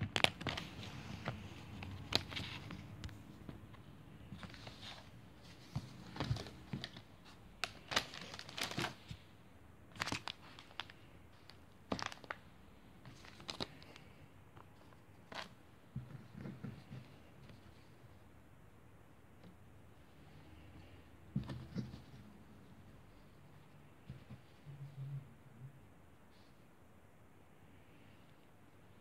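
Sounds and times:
plastic packaging crinkling: 6.1 - 9.0, 9.9 - 12.4.

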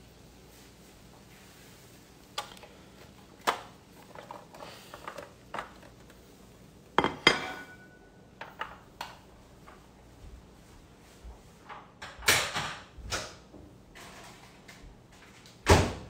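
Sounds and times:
ceramic plate set on countertop: 6.9 - 9.8
kitchenware clinks and knocks: 7.0 - 8.8.

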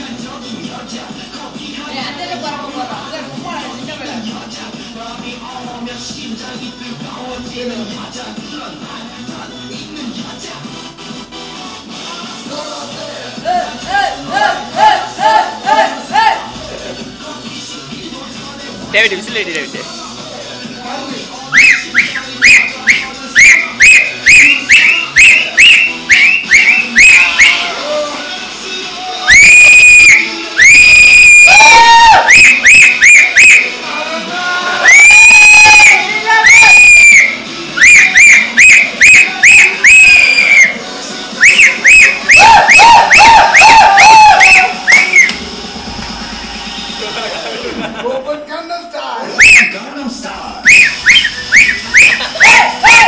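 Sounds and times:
shrill rhythmic whistling: 21.5 - 27.8, 29.1 - 33.9, 34.8 - 45.5, 49.4 - 49.9, 50.6 - 53.0.

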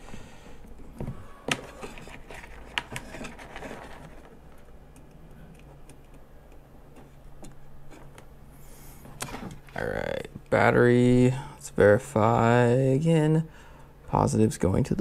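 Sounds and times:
hands handling wires in plastic case: 1.0 - 6.2.

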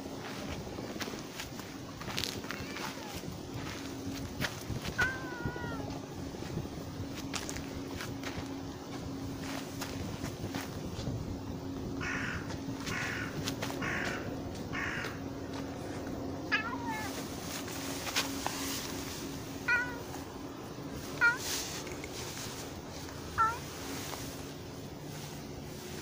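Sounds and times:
cat meowing: 2.5 - 3.2, 4.9 - 6.0, 16.5 - 17.2, 19.6 - 20.2, 21.2 - 21.5, 23.4 - 23.7
harsh cat calls: 4.9 - 6.0, 16.5 - 17.2, 19.6 - 20.2, 21.1 - 21.8, 23.3 - 23.7.

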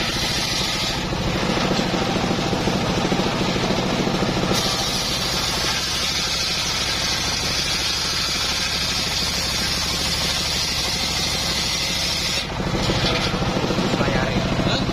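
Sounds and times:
circular saw blade hissing in wood: 0.0 - 1.1, 4.5 - 12.5
engine running: 0.0 - 14.9.

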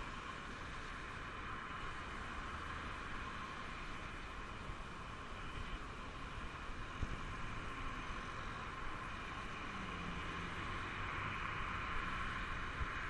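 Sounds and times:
cars passing: 6.5 - 13.0.

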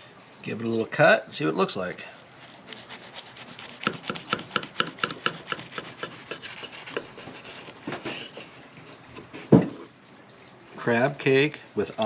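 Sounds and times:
knife sawing through bun: 2.2 - 8.6.

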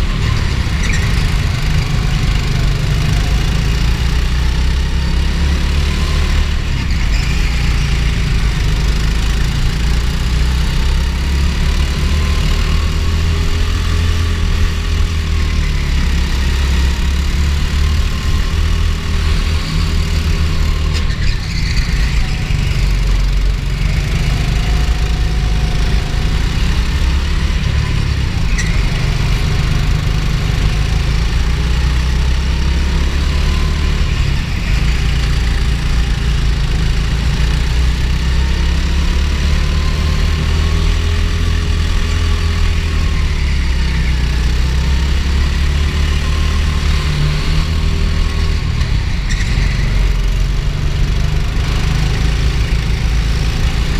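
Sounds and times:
go-kart engine revving: 0.0 - 53.9.

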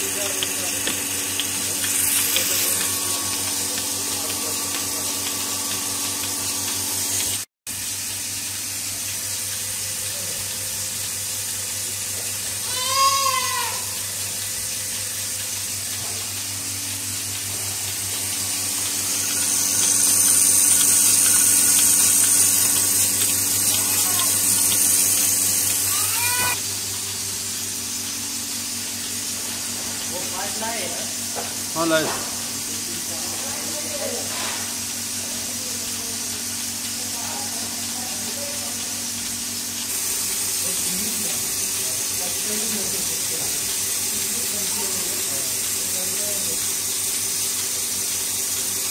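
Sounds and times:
vacuum pump running: 0.0 - 48.9
animal bawling: 25.9 - 26.6.

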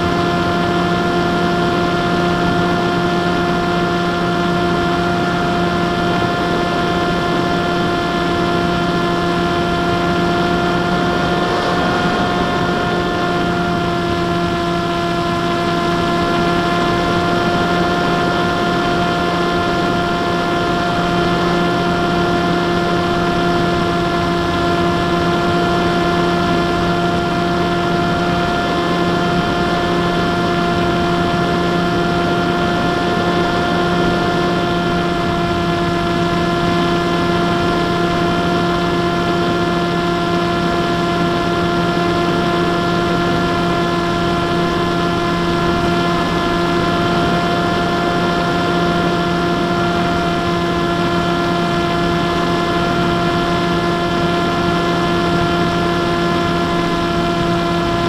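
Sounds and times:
airflow rushing: 0.0 - 40.1
electric motor and propeller whine: 0.0 - 58.0.

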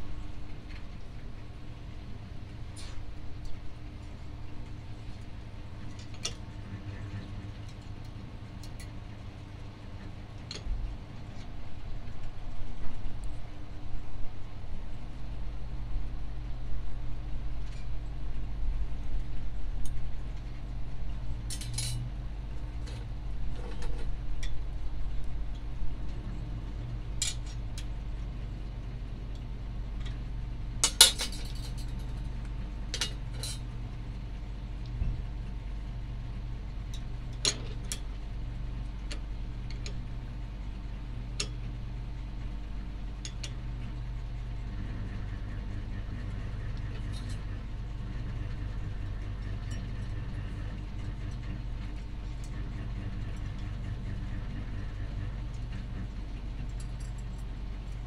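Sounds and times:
steady low hum: 0.0 - 58.0
metal rod clinking: 21.5 - 22.0.

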